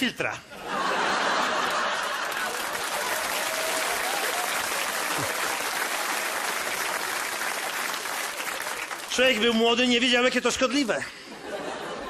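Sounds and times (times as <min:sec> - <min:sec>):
audience applauding: 0:01.2 - 0:09.7.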